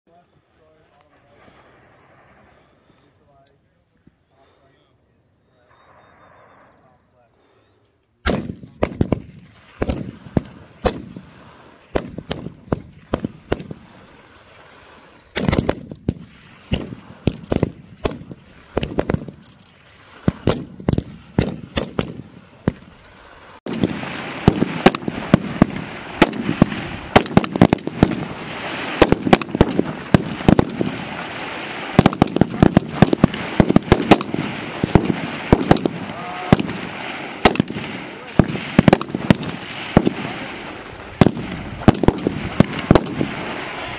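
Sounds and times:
rifle shots: 8.2s - 14.1s, 15.3s - 23.0s, 23.7s - 43.9s.

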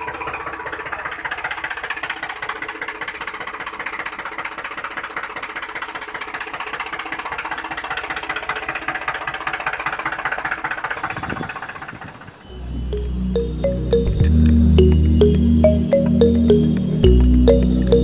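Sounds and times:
toy tractor motor rattling buzz: 0.0s - 12.4s.

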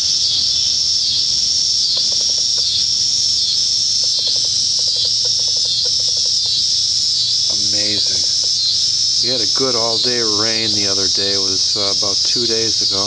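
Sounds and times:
insect chorus drone: 0.0s - 13.0s
rapid faint low clicks: 0.3s - 6.8s.

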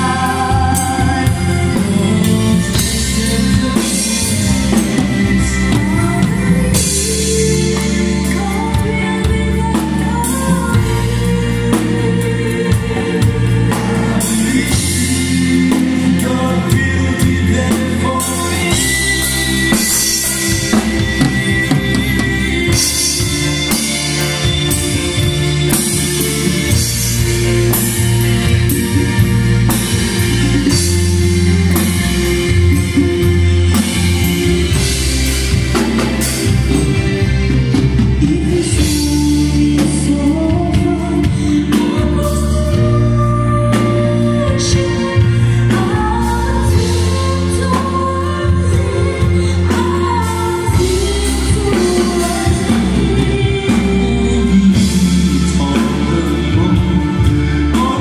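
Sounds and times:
drum kit beat: 0.0s - 58.0s
electronic keyboards: 0.0s - 58.0s
voices singing: 0.0s - 58.0s.

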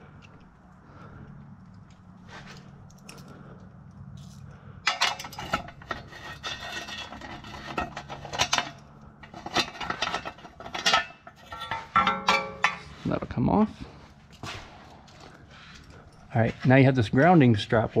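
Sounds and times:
low steady hum: 0.0s - 18.0s
metal parts clinking: 2.6s - 3.4s, 4.2s - 13.0s.

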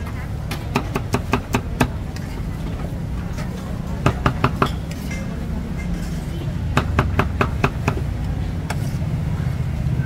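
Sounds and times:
cleaver chopping on wooden block: 6.8s - 8.0s.

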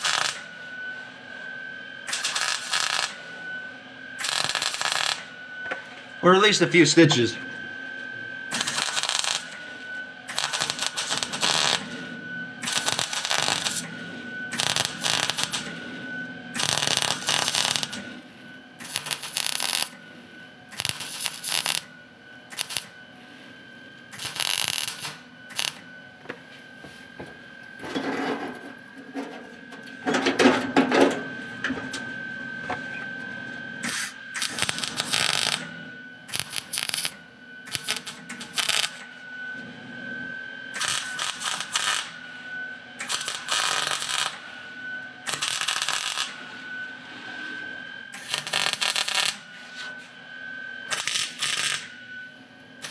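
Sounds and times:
welder arc bursts: 0.0s - 0.5s, 2.1s - 3.2s, 4.2s - 5.3s, 8.5s - 9.6s, 10.3s - 11.9s, 12.6s - 13.9s, 14.5s - 15.7s, 16.5s - 18.0s, 18.8s - 20.0s, 20.7s - 21.9s, 22.5s - 23.0s, 24.1s - 25.8s, 33.8s - 35.7s, 36.3s - 39.0s, 40.8s - 42.1s, 43.0s - 44.4s, 45.3s - 46.4s, 48.1s - 49.4s, 50.9s - 51.9s
steady high whine: 0.0s - 52.9s.

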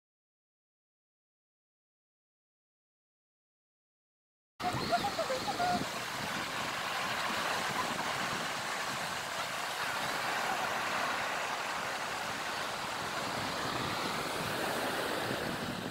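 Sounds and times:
shallow seawater at shoreline: 4.6s - 15.9s
wind: 4.6s - 15.9s.

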